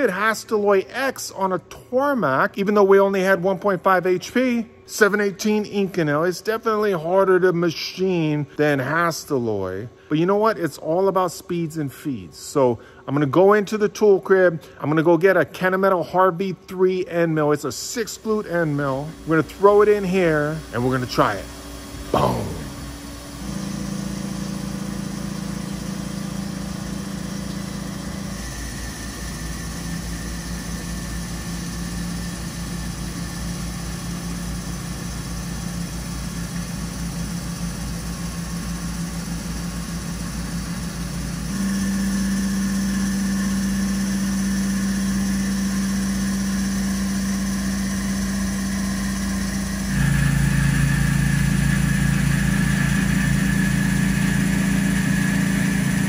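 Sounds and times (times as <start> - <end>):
milling machine humming: 18.2 - 56.0
spraying coolant: 18.2 - 56.0.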